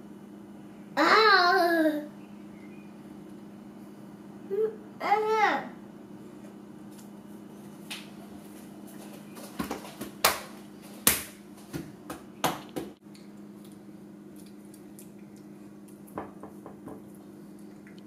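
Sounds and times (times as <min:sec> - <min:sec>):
low room hum: 0:00.0 - 0:18.0
light knocks on plate and countertop: 0:16.2 - 0:17.0.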